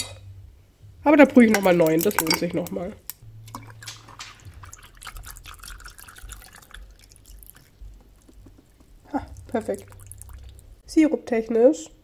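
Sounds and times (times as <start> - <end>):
small drips: 1.6 - 10.8
milk trickling into a glass: 3.5 - 10.8.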